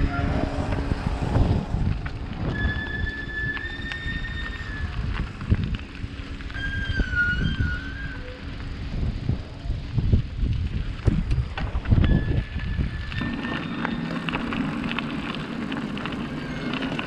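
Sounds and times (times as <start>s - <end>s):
wavering high squeal: 0.0s - 1.2s, 2.4s - 5.1s, 6.5s - 8.5s
bicycle rumbling over rough ground: 0.0s - 17.0s
wind buffeting microphone: 0.0s - 17.0s.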